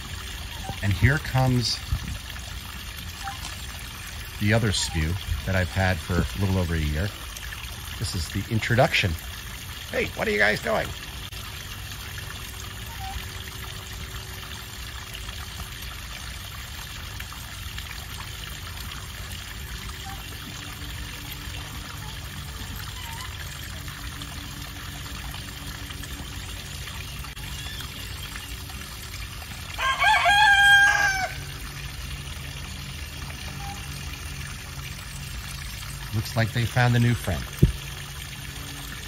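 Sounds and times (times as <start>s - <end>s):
water trickling in stone channel: 0.0s - 39.0s
rooster crowing: 29.8s - 31.5s.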